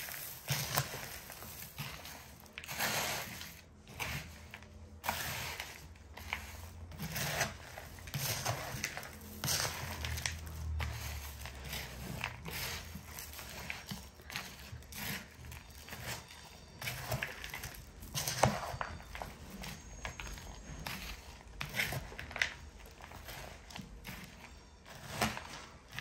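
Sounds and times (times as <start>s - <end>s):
crunching puffed-rice snack: 0.0s - 26.0s.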